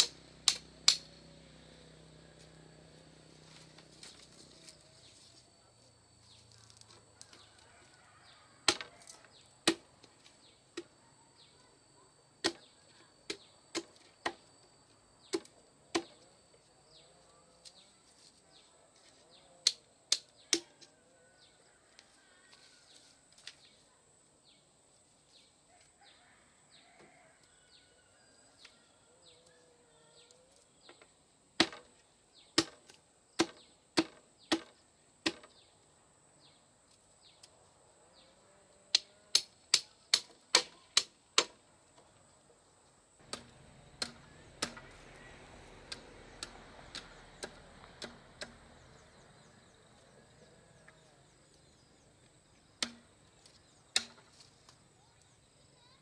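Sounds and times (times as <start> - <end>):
bamboo knocking on bamboo: 8.7 - 10.1, 12.4 - 12.7, 15.3 - 16.2, 30.9 - 32.0, 32.6 - 35.6, 38.9 - 41.6, 43.2 - 45.0, 45.8 - 48.8, 52.8 - 53.1, 53.9 - 54.4.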